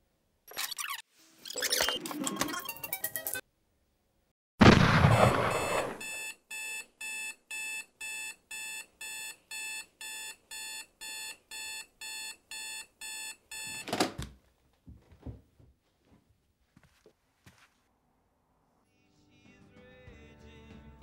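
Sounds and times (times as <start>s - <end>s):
loud crash: 4.6s - 6.0s
electronic alarm beeping: 5.1s - 13.9s.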